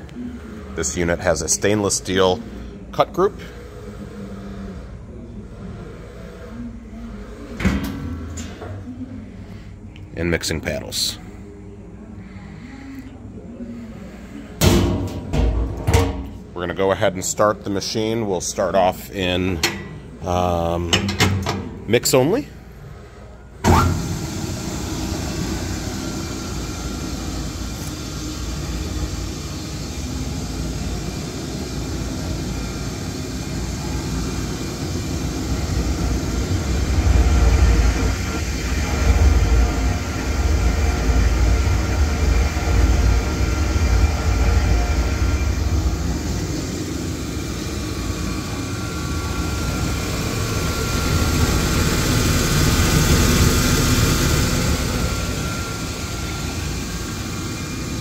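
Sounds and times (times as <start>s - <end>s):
mixer grinder hum and rumble: 23.6s - 58.0s.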